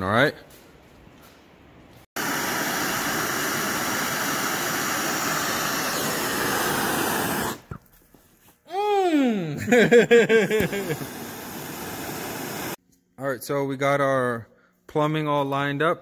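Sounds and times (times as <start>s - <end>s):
gas torch flame hissing: 2.2s - 7.8s, 10.4s - 12.8s.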